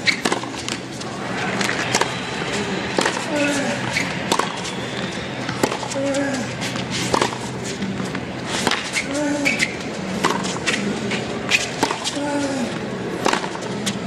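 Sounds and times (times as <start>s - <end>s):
shoe squeaks on court: 0.0s - 0.5s, 3.1s - 5.9s, 8.7s - 9.9s
racket hitting tennis ball: 0.0s - 2.2s, 2.9s - 4.7s, 5.4s - 12.2s, 13.2s - 14.0s.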